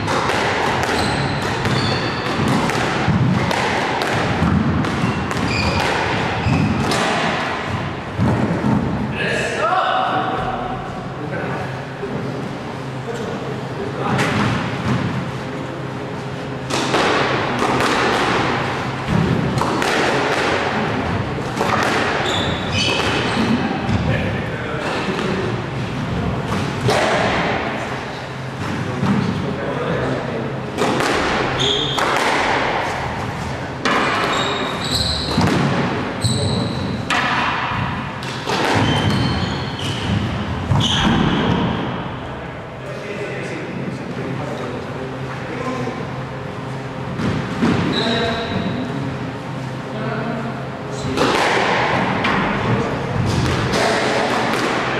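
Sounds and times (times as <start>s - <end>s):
squash ball knocks echoing: 0.0s - 9.1s, 16.5s - 29.5s, 30.6s - 42.2s, 51.0s - 54.9s
shoe squeaking on court floor: 0.8s - 2.6s, 5.0s - 7.0s, 22.1s - 23.8s, 31.5s - 32.0s, 34.1s - 35.5s, 36.2s - 37.0s, 38.7s - 41.8s, 47.8s - 48.8s.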